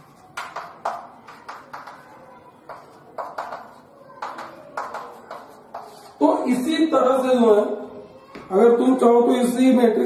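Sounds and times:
chalk tapping on chalkboard: 0:00.0 - 0:06.2.

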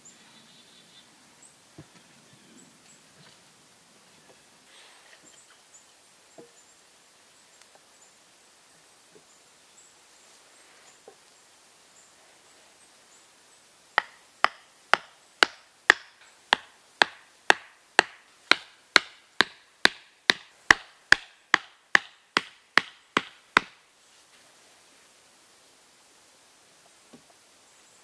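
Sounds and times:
hatchet striking wooden post: 0:14.0 - 0:23.8.

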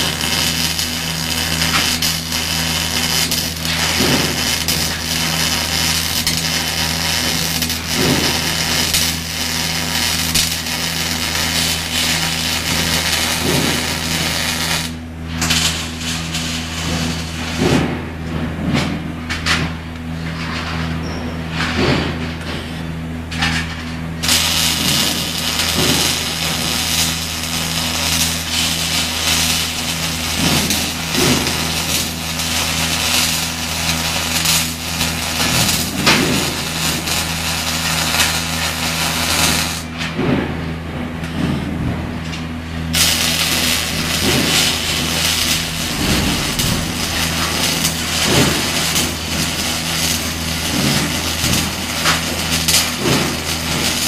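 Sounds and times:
welding arc crackling: 0:00.0 - 0:19.9, 0:23.3 - 0:40.2, 0:42.2 - 0:54.0
low hum: 0:40.9 - 0:54.0.

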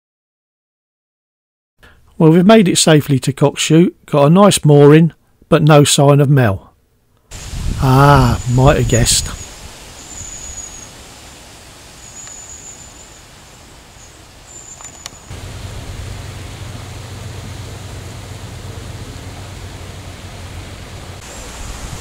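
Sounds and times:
hiss of air and leaves: 0:07.3 - 0:22.0
low steady rumble: 0:07.3 - 0:22.0
high thin bird calls: 0:09.2 - 0:15.4.

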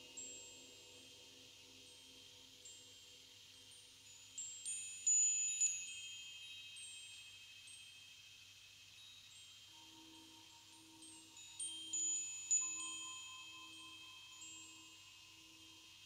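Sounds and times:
metallic chimes ringing: 0:04.1 - 0:16.0.

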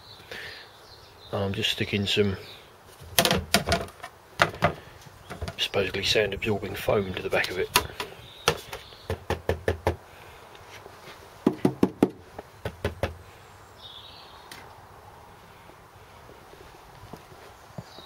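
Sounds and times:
knocks on metal floor panels: 0:08.0 - 0:10.0, 0:11.4 - 0:13.2.

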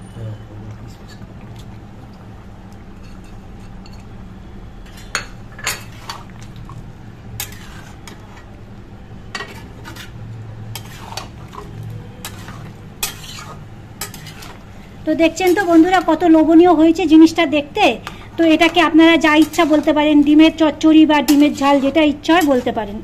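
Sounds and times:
metal spatula scraping metal pan: 0:07.4 - 0:08.2, 0:09.3 - 0:14.6, 0:18.1 - 0:22.8.

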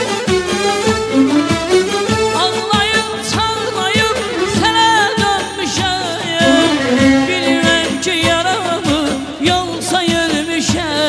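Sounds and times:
keyboard and drums beat: 0:00.0 - 0:11.0
man singing into microphone: 0:02.4 - 0:11.0.

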